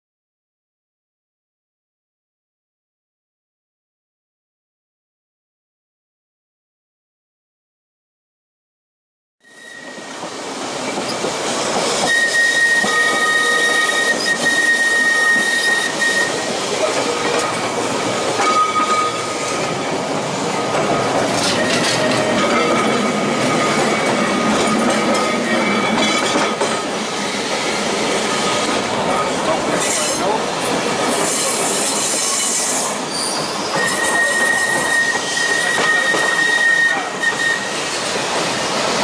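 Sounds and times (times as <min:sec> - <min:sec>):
wheel squeal: 0:09.4 - 0:10.1, 0:12.0 - 0:17.4, 0:21.4 - 0:26.5, 0:31.2 - 0:38.0
tram wheels rattling on rail: 0:09.6 - 0:39.0.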